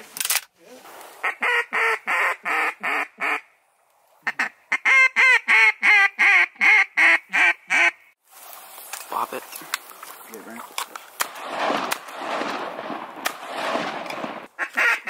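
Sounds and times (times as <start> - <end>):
duck call quacks: 1.2 - 3.5, 4.2 - 8.1, 14.6 - 15.0.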